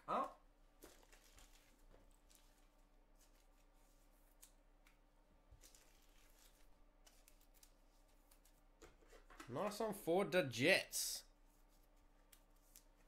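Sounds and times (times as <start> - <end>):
trading cards rustling and clicking: 5.6 - 9.8.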